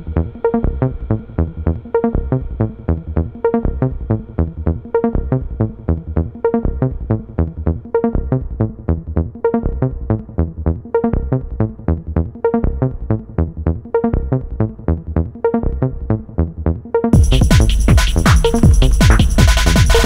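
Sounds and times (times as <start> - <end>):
electronic music with quick beat: 17.1 - 20.0.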